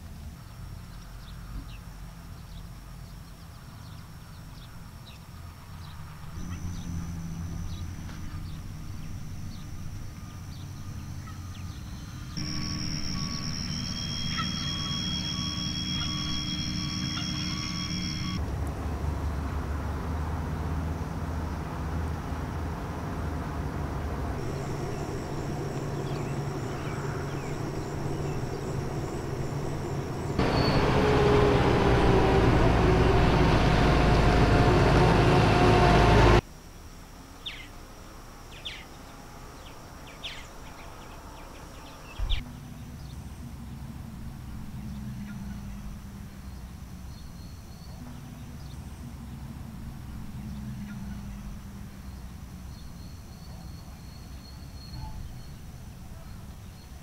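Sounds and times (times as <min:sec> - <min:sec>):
bird chirps: 0:03.6 - 0:18.4, 0:24.4 - 0:31.4, 0:50.3 - 0:57.0
motor vehicle running close by: 0:03.9 - 0:36.4, 0:39.5 - 0:53.2
insect drone: 0:04.1 - 0:18.5, 0:20.7 - 0:57.0
low rumble: 0:05.6 - 0:36.4, 0:42.3 - 0:53.6.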